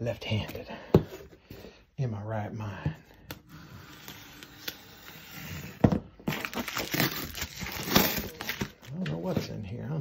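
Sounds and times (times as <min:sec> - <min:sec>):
tape and cardboard tearing: 0:03.3 - 0:08.9.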